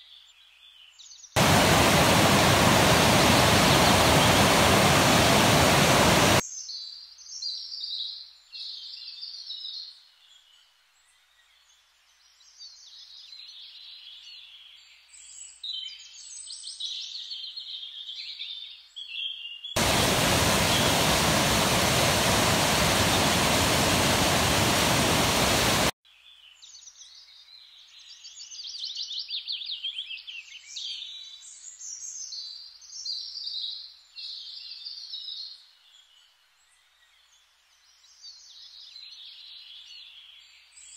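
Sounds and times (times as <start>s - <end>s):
songbirds singing: 0.0s - 40.9s
water rushing over rocks: 1.4s - 6.4s, 19.8s - 25.9s.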